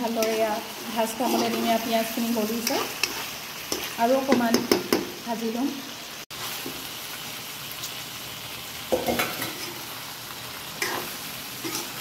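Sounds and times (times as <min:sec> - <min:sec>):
metal spatula scraping: 0:00.0 - 0:04.0, 0:10.8 - 0:12.0
food sizzling in a pan: 0:00.0 - 0:12.0.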